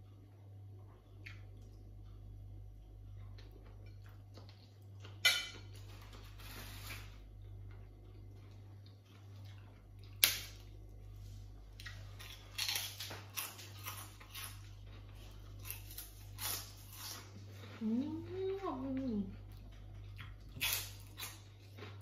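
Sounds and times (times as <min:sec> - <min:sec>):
crunching chews: 0:02.8 - 0:17.8, 0:19.3 - 0:22.0
prawn crackers snapping: 0:10.0 - 0:10.7.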